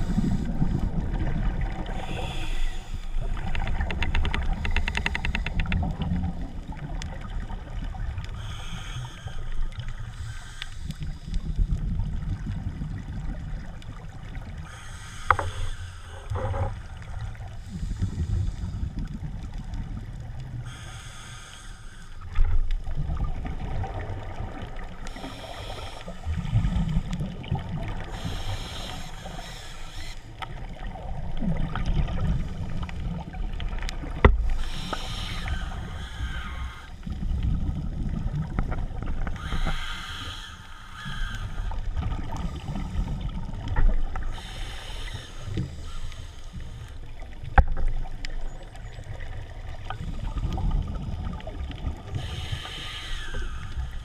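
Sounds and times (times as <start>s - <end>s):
diver breathing underwater: 0.0s - 3.6s, 8.3s - 11.7s, 14.5s - 19.0s, 20.6s - 22.4s, 25.0s - 27.2s, 28.0s - 30.9s, 34.4s - 37.4s, 39.2s - 47.2s, 52.0s - 54.0s
exhaled bubbles gurgling: 0.0s - 20.8s, 22.2s - 45.9s, 47.0s - 54.0s.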